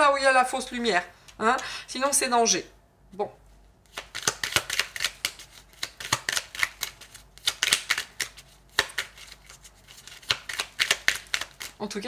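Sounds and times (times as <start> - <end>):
cards being shuffled: 3.9 - 11.8.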